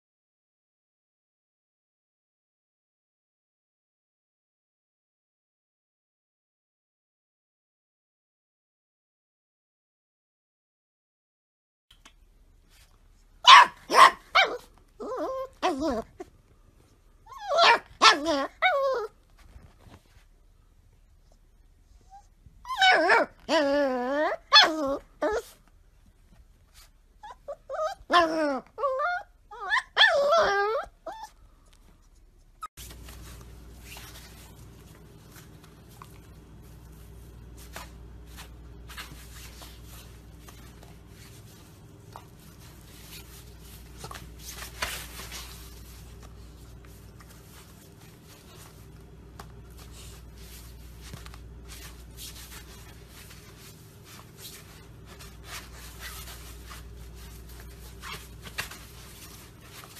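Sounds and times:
puppy whining: 13.4 - 16.4, 17.2 - 20.1, 21.2 - 25.7, 26.7 - 59.9
steady low hum: 31.3 - 59.9
soft clicks and rustles: 31.6 - 59.9.

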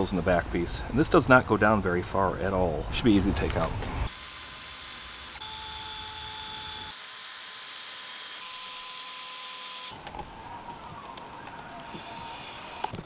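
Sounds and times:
cordless drill whining: 4.1 - 10.0, 11.9 - 13.0.

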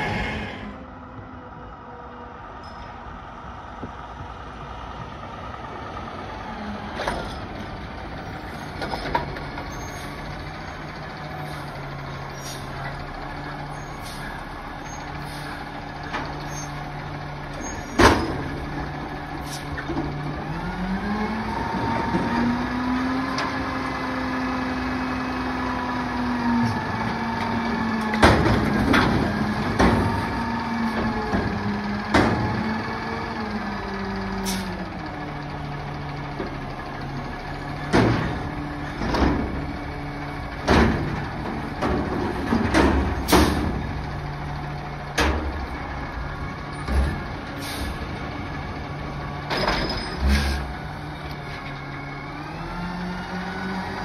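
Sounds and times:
air brake hiss: 0.0 - 0.8, 11.4 - 12.8, 13.8 - 14.4, 15.2 - 15.6, 19.4 - 19.8, 34.4 - 34.8, 47.6 - 48.0
garbage truck engine: 0.0 - 54.0
metal clanks: 49.4 - 50.8.

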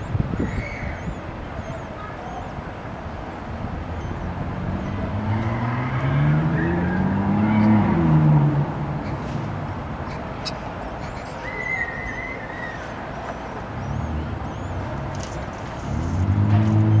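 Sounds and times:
vehicle engine revving: 3.5 - 9.8, 13.7 - 17.0.

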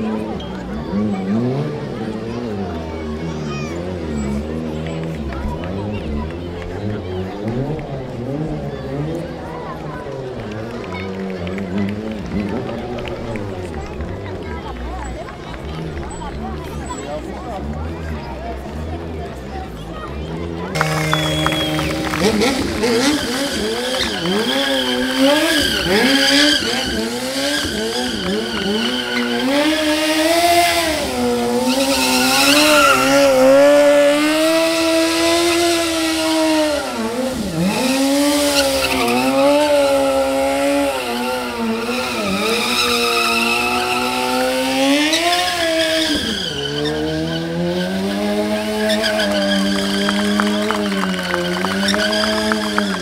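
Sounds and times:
motorcycle engine revving: 0.0 - 53.0
tyre squealing: 20.8 - 34.6, 45.0 - 53.0.

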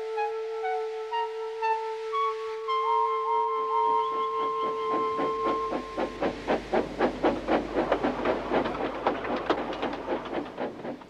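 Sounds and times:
steam locomotive chuffing: 3.3 - 11.0.

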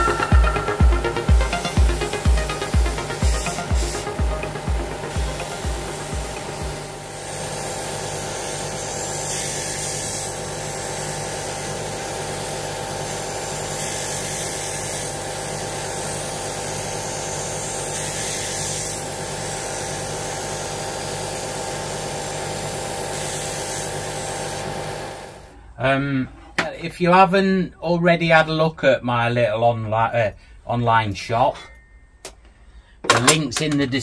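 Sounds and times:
sander running: 0.0 - 12.8.

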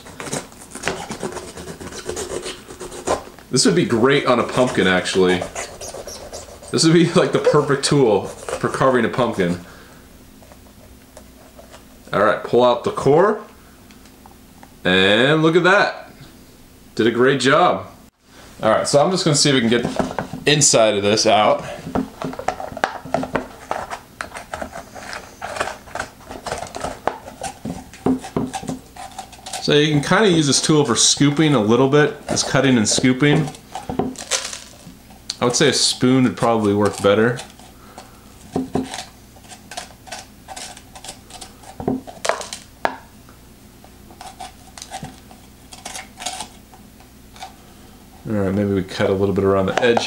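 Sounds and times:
spoon scraping pepper: 0.0 - 3.3, 3.9 - 9.6, 19.6 - 42.6, 43.8 - 47.6.

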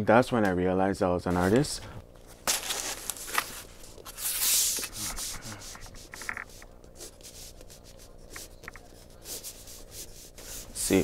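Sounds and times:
pencil scratching on paper: 4.4 - 11.0.

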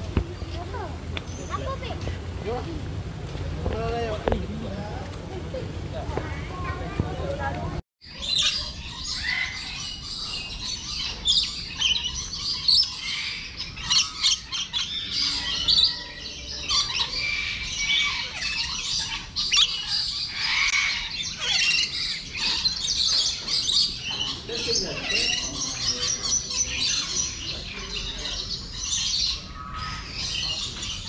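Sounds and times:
birds squawking and chirping: 0.0 - 2.9, 3.6 - 31.0.

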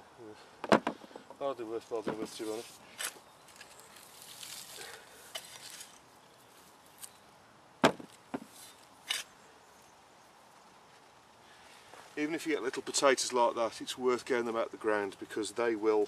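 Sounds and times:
sharp knocks: 0.6 - 1.4, 7.8 - 8.5
hand fork digging dry soil: 2.2 - 6.0, 8.5 - 9.3.

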